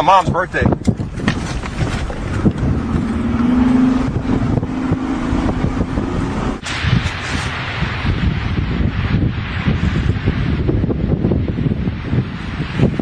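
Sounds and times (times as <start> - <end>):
wind rushing over microphone: 0.0 - 13.0
car engine drone in cabin: 1.9 - 6.6.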